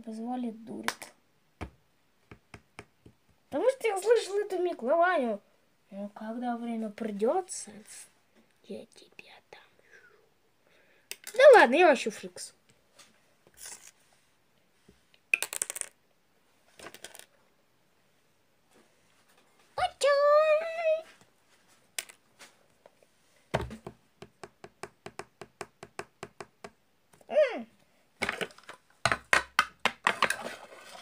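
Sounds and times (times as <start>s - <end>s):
plastic toy bricks clicking: 15.3s - 16.0s.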